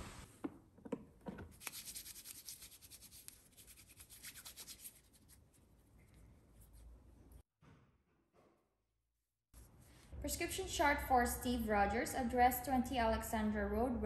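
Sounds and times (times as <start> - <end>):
hands rubbing together: 1.6 - 6.9.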